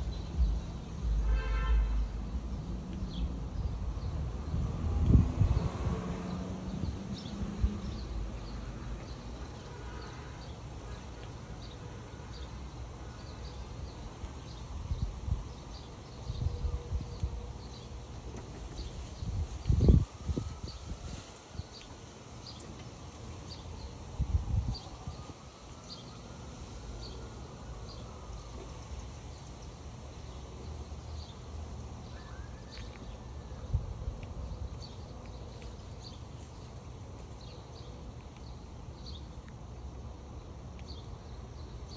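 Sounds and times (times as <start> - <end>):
squirrel gnawing on a peanut: 10.6 - 12.2, 32.7 - 41.8.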